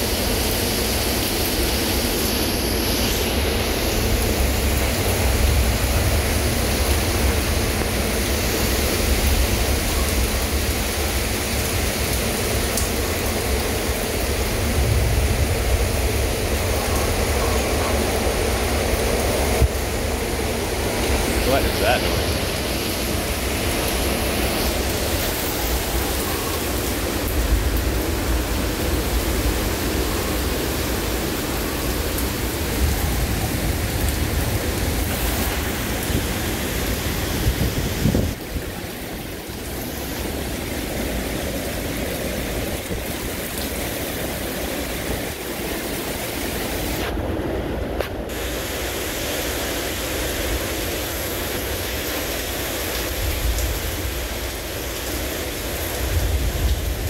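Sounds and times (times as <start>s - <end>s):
heavy driving rain: 0.0s - 57.0s
storm wind: 0.0s - 57.0s
wind buffeting microphone: 22.2s - 39.0s.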